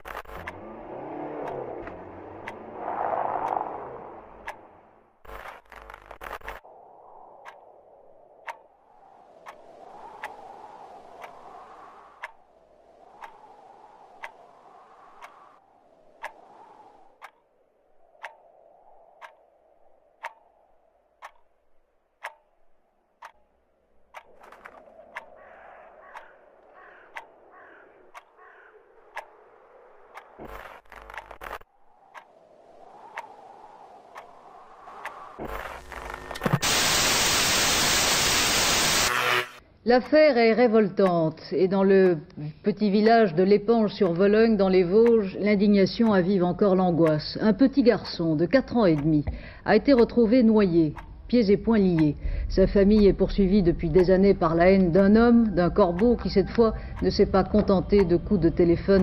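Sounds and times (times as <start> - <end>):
clock ticking: 0.0 - 2.7, 3.4 - 4.7, 8.4 - 8.7, 12.2 - 12.4, 13.2 - 13.5, 14.2 - 14.4, 16.2 - 16.4, 17.2 - 17.4, 18.1 - 18.5, 19.1 - 19.5, 20.2 - 20.6, 21.2 - 29.4, 30.0 - 32.3, 33.1 - 33.4, 39.9 - 59.0
loud rushing noise: 34.7 - 39.6
faint hiss: 36.4 - 39.5.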